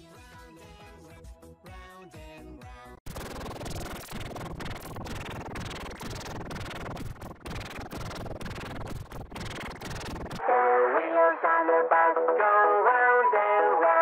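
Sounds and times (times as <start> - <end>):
harsh crackling distorted noise: 3.0 - 10.4.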